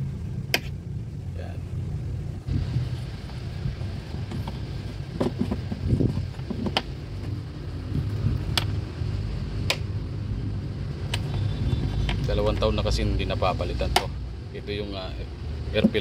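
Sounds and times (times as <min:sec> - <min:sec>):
steady low hum: 0:00.0 - 0:16.0
plastic housing rustling and knocking: 0:04.1 - 0:07.4, 0:15.8 - 0:16.0.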